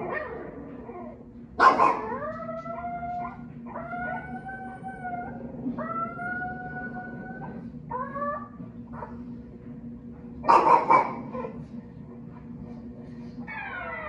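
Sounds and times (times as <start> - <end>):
dog howling: 0.0 - 9.2, 13.4 - 14.0
dog sharp cry: 1.6 - 2.2.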